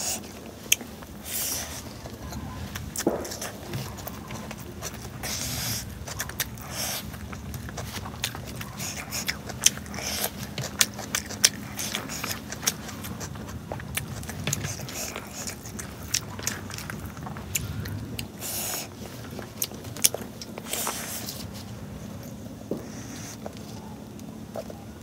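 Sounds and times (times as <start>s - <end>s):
chewing with lip smacks: 0.0s - 25.0s
fingers squishing rice: 0.0s - 25.0s.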